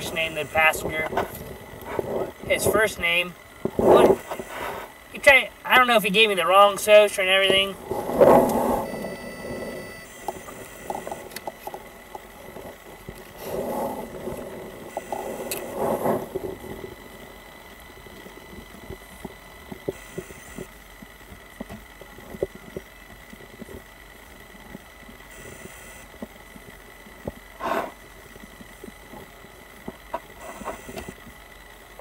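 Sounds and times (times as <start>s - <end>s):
low cabin hum: 0.0s - 32.0s
steady high whine: 0.0s - 32.0s
muffled rustling: 7.4s - 23.9s.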